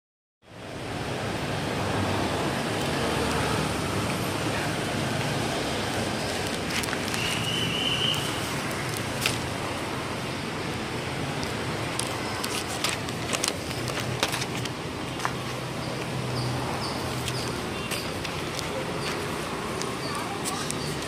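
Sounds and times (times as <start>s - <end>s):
newspaper pages rustling: 5.9s - 7.8s, 12.0s - 14.8s.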